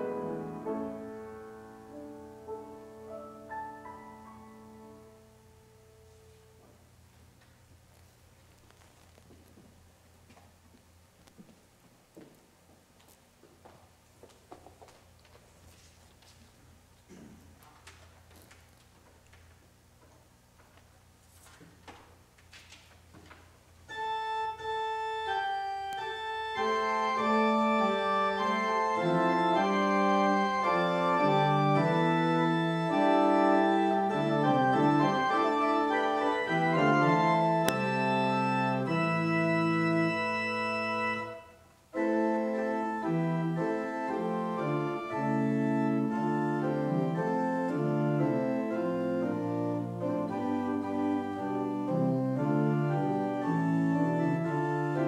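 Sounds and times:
pipe organ playing chords: 0:00.0 - 0:06.9, 0:23.8 - 0:55.0.

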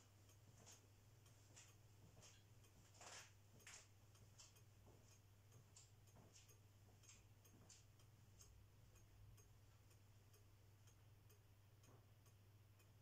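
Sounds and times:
pendulum clock ticking: 0:00.0 - 0:13.0.

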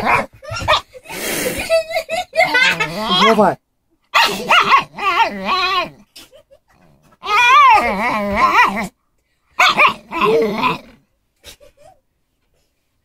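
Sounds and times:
dog whining and moaning: 0:02.4 - 0:03.5, 0:04.2 - 0:09.0, 0:09.6 - 0:12.0.

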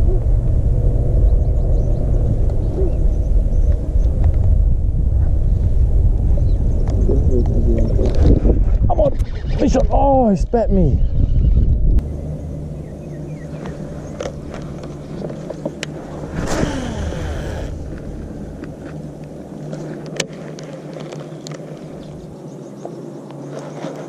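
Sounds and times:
low rumble: 0:00.0 - 0:21.0
reel whirr: 0:14.2 - 0:18.0.

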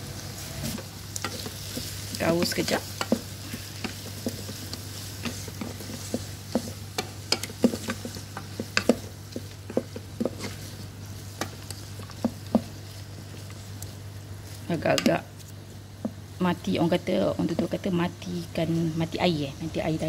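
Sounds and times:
light sizzle of frying: 0:00.0 - 0:20.0
steady low hum: 0:00.0 - 0:20.0
spatula knocking and scraping pot: 0:00.7 - 0:13.6.

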